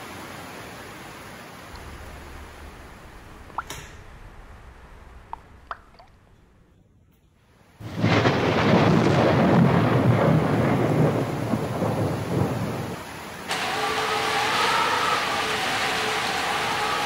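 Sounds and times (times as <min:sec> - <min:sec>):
heavy rain: 0:00.0 - 0:06.6, 0:07.7 - 0:17.0
thunder rumbling: 0:01.6 - 0:07.1, 0:07.8 - 0:15.4.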